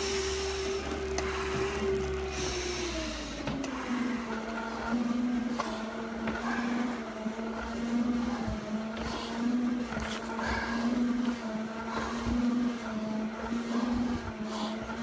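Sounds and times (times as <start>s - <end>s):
pulsing machine hum: 0.0s - 15.0s
breathing through mask regulator: 8.1s - 12.6s.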